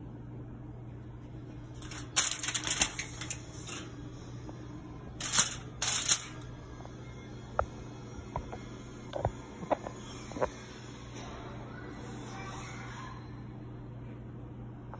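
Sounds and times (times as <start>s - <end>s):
aluminium foil crinkling: 1.8s - 3.9s, 5.2s - 6.4s.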